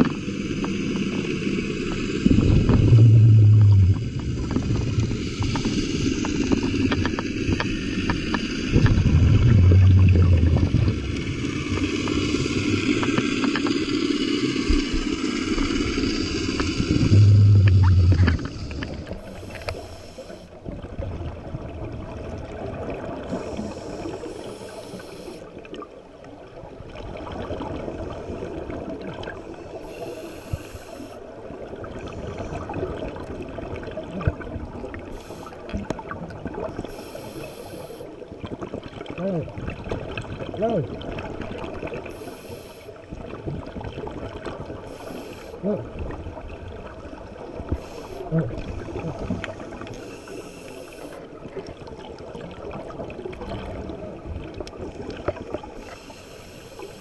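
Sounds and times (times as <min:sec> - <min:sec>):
muffled underwater noise: 0:00.0 - 0:20.5, 0:36.5 - 0:38.2, 0:38.9 - 0:43.3, 0:44.7 - 0:46.8, 0:47.4 - 0:57.0
low rumbling bubble bursts: 0:02.0 - 0:19.4.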